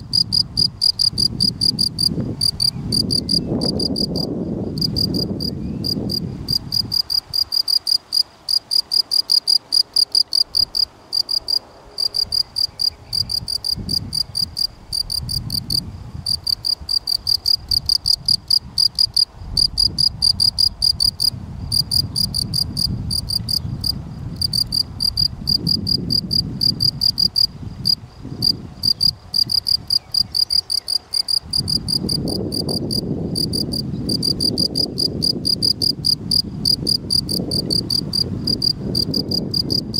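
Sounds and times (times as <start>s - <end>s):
field cricket chirping: 0.0s - 39.9s.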